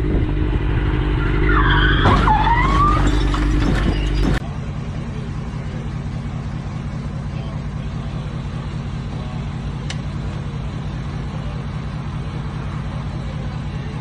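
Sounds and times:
motorcycle engine running: 0.0 - 1.6, 3.6 - 14.0
steady low hum: 0.0 - 2.2
crash impact: 0.0 - 4.5
tyres squealing: 1.2 - 4.4.

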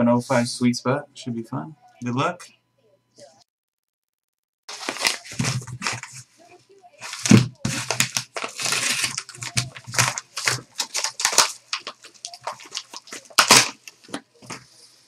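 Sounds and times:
padded mailer crinkling: 4.7 - 6.3, 7.0 - 14.6.

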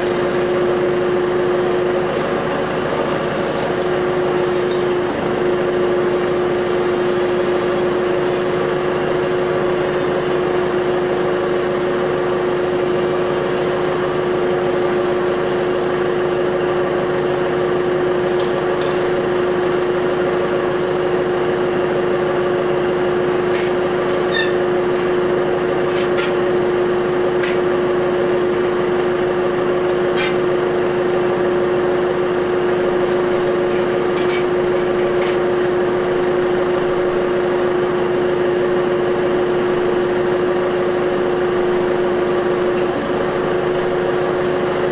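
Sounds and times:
engine droning: 0.0 - 44.9.

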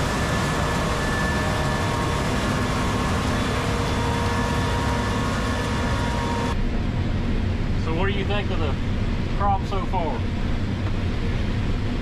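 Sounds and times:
high whines: 0.0 - 8.9
combine harvester machinery hum: 0.0 - 12.0
dull hum inside cab: 1.9 - 12.0.

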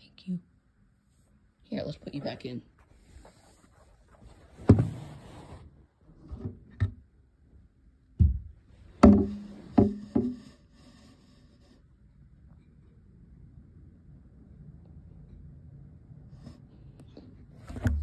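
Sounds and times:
knocks against enclosure: 8.2 - 10.4.

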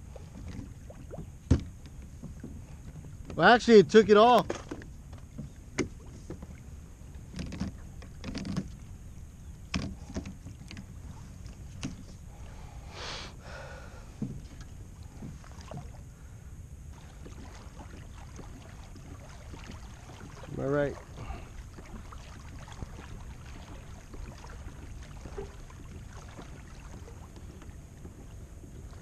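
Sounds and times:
gear knocking against kayak hull: 7.2 - 8.8, 9.7 - 12.2
water rushing: 16.9 - 29.0.

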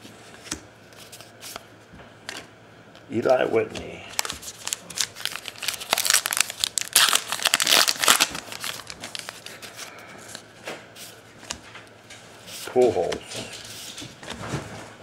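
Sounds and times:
card pack wrapper tearing and crinkling: 4.1 - 9.6.

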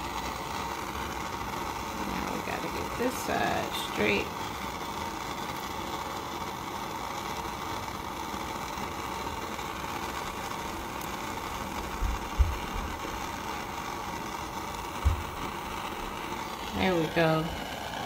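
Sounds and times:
gas torch hissing: 0.0 - 18.0
dull low bumps: 12.0 - 12.8, 15.0 - 15.4.

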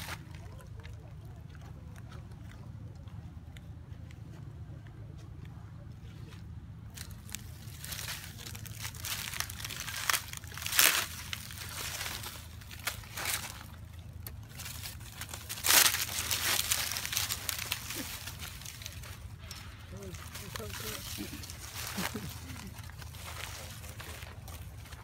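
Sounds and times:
monkey handling camera rustling: 7.0 - 25.0.

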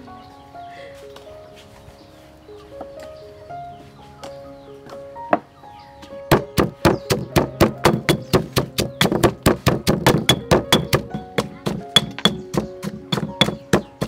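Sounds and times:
background music: 0.0 - 14.0
knife chopping on cutting board: 6.3 - 14.0.

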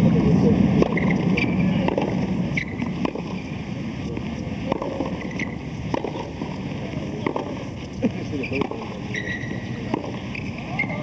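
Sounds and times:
tennis balls being struck: 0.7 - 3.5, 4.1 - 10.9
short high squeaks: 2.5 - 2.8, 8.4 - 11.0.

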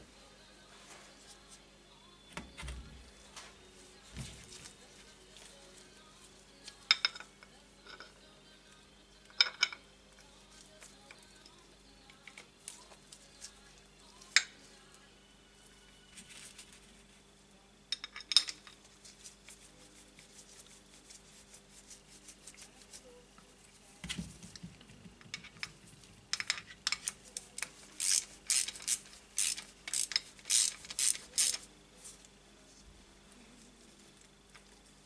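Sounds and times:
hand ratchet clicking: 28.0 - 31.6.

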